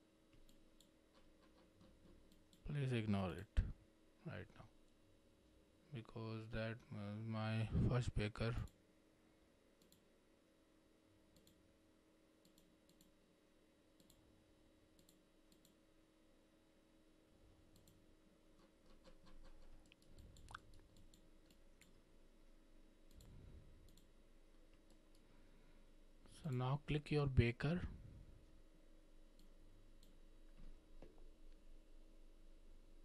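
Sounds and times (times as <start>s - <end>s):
low steady hum: 0.0s - 33.0s
computer mouse clicks: 9.8s - 10.0s, 11.3s - 11.6s, 12.4s - 13.2s, 14.0s - 14.2s, 15.0s - 15.8s, 17.7s - 18.0s, 18.6s - 22.0s, 23.1s - 24.1s.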